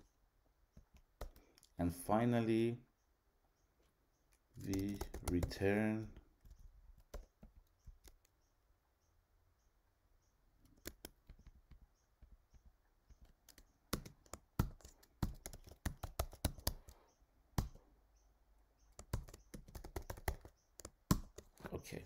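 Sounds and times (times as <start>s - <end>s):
typing on computer keyboard: 0.9s - 1.7s, 4.6s - 5.7s, 6.4s - 8.3s, 10.6s - 11.6s, 13.1s - 17.0s, 18.9s - 21.7s.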